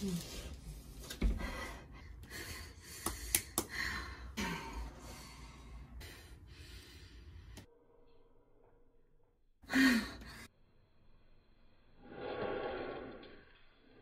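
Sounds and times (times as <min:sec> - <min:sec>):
woman breathing heavily and gasping: 0:01.2 - 0:07.6, 0:09.6 - 0:10.5.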